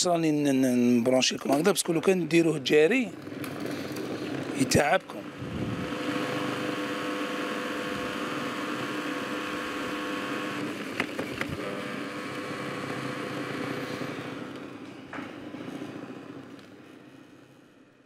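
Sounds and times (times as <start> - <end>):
electric chopper grinding nuts: 3.2 - 14.9.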